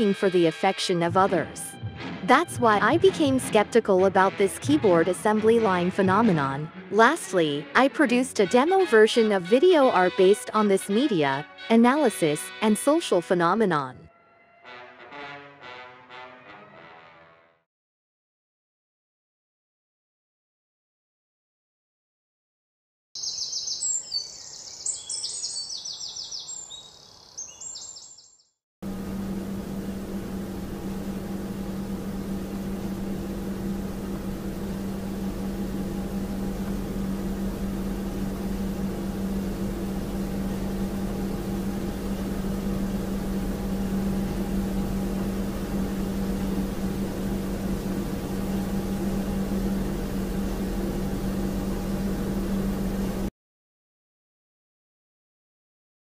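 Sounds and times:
machine hum with low drone: 0:28.8 - 0:53.3.

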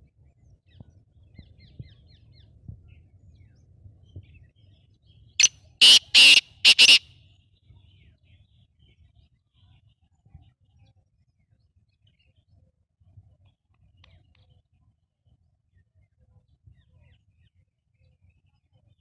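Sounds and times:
small birds chirping: 0:05.4 - 0:07.0
francolin harsh call: 0:05.8 - 0:07.0.

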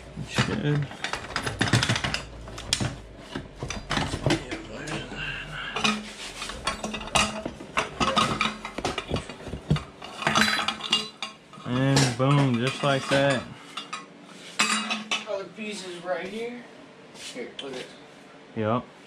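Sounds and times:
metal clanking and scraping: 0:00.2 - 0:15.1.

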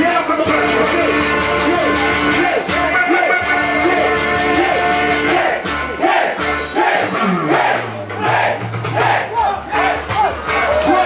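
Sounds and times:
person rapping: 0:00.0 - 0:05.6
hip-hop beat over a pa: 0:00.0 - 0:11.0
crowd shouting: 0:01.9 - 0:11.0.

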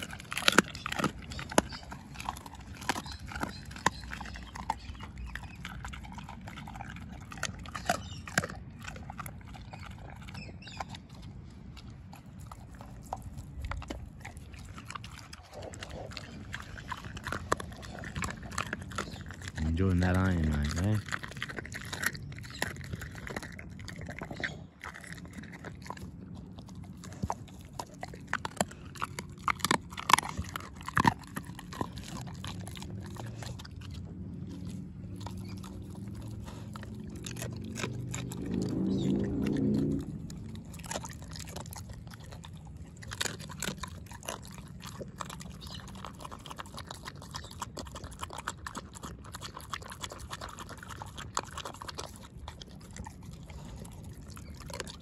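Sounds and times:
dog chewing and crunching food: 0:00.0 - 0:55.0
low hum: 0:22.1 - 0:44.0.

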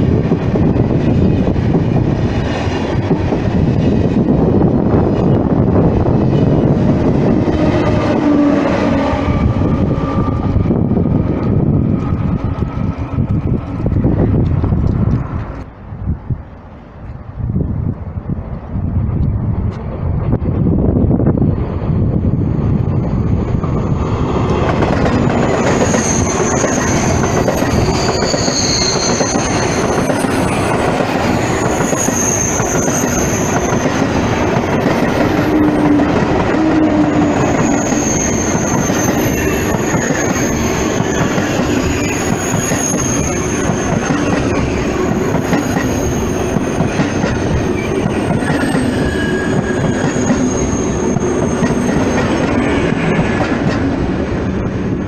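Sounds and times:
train wheels rumbling on rails: 0:00.0 - 0:55.0
high wheel squeal: 0:25.2 - 0:34.0, 0:35.5 - 0:53.0.

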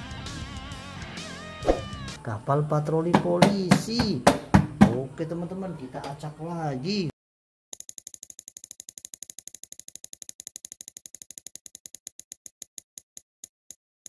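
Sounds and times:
spinning prize wheel ticking: 0:07.8 - 0:13.1.

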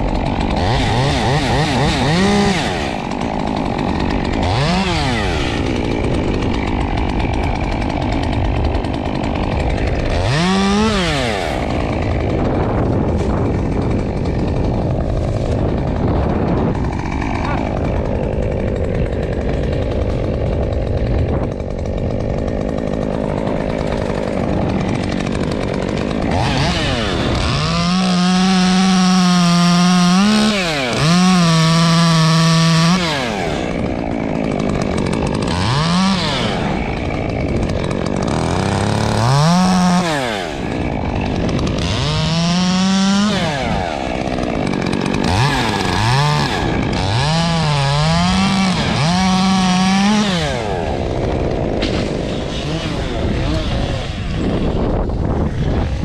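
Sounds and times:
chainsaw revving: 0:00.0 - 0:56.0
wind on microphone: 0:11.7 - 0:18.8, 0:20.1 - 0:21.9, 0:52.3 - 0:56.0.

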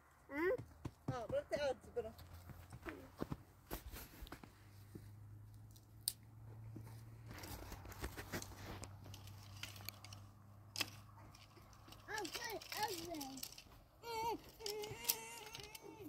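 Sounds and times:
dry twigs snapping and crackling: 0:07.4 - 0:13.8, 0:14.4 - 0:16.0.

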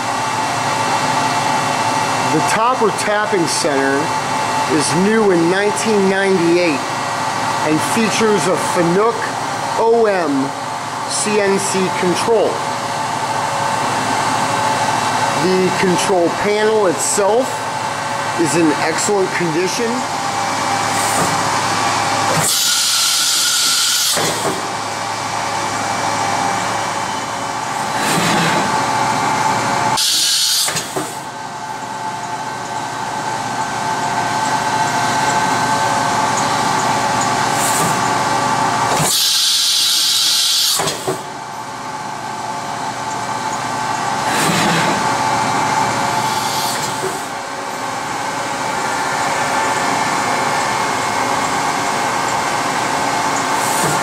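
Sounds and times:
machine whine: 0:00.0 - 0:54.0
hissing air blasts: 0:22.3 - 0:24.7, 0:30.0 - 0:31.2, 0:44.2 - 0:45.2, 0:46.2 - 0:47.4.

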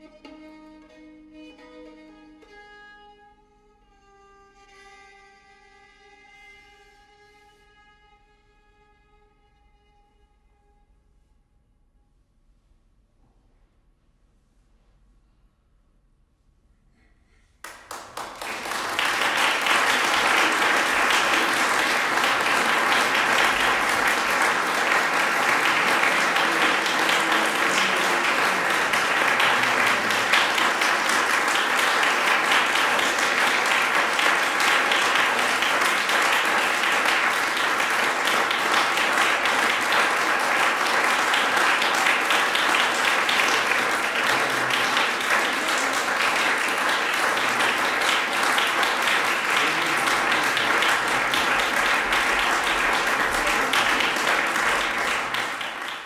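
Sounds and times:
audience applause: 0:17.6 - 0:56.0.

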